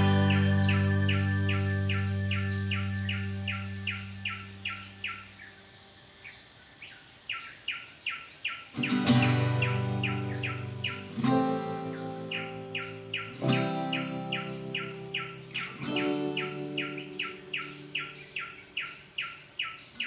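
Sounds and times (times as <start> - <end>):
plucked guitar-like chords: 0.0 - 5.0, 8.8 - 18.7
small bird chirping: 0.0 - 20.0.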